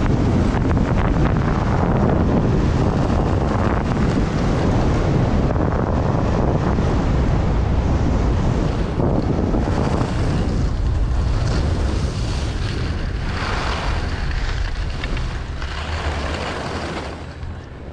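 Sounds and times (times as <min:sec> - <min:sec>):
wind buffeting microphone: 0:00.0 - 0:17.9
skis sliding over snow: 0:08.0 - 0:17.9.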